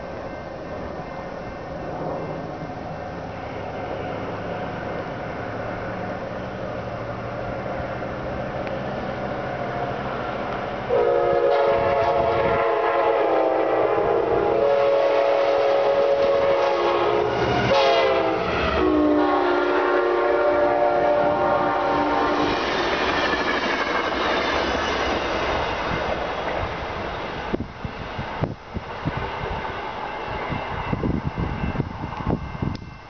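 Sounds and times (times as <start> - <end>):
train wheels rolling over rails: 0.0 - 33.0
train horn blasts: 10.9 - 22.6.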